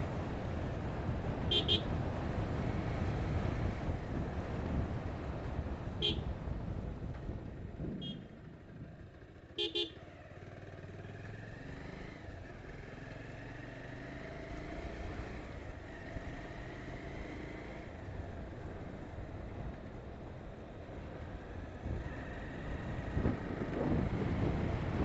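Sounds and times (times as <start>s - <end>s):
motorcycle engine and road noise: 0.0s - 25.0s
vehicle horn beeps: 1.5s - 1.9s, 6.0s - 6.3s, 8.0s - 8.3s, 9.6s - 10.0s.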